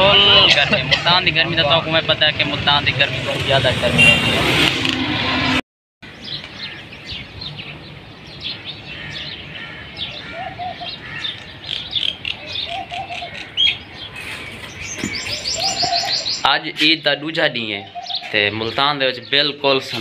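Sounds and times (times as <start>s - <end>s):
street traffic: 0.0s - 20.0s
small birds chirping: 6.1s - 20.0s
dove cooing: 12.4s - 13.5s.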